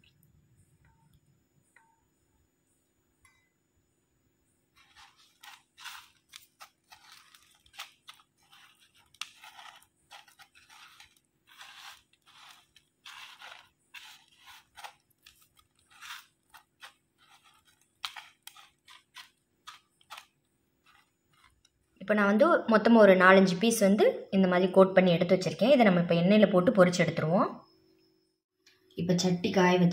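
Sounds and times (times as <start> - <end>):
corn chips crackling and crunching: 4.8 - 21.7.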